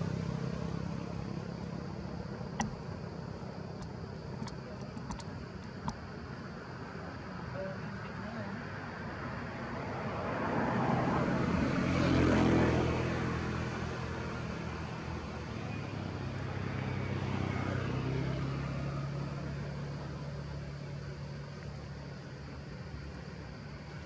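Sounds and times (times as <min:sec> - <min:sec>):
motor engine droning: 0:00.0 - 0:06.1.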